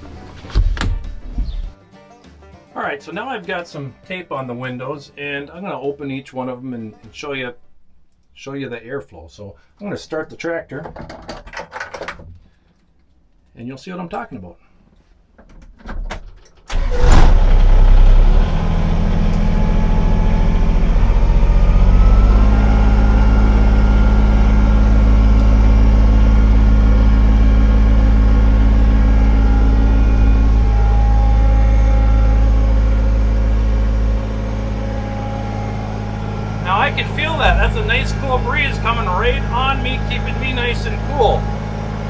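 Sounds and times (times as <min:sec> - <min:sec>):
tractor diesel engine starting: 0:16.7 - 0:42.0.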